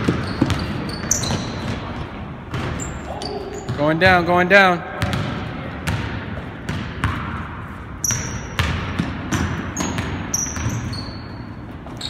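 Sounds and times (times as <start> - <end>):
basketball bouncing on wooden floor: 0.0 - 2.9, 5.0 - 7.4, 8.1 - 11.0
sneaker squeaks: 0.0 - 4.0, 8.0 - 12.0.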